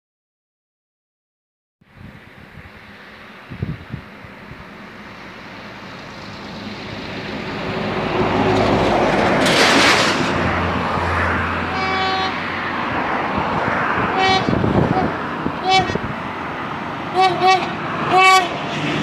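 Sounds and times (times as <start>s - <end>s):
diesel locomotive approaching: 1.8s - 19.0s
rush of noise: 1.9s - 19.0s
train horn blast: 11.6s - 12.6s, 14.1s - 16.1s, 17.1s - 18.7s.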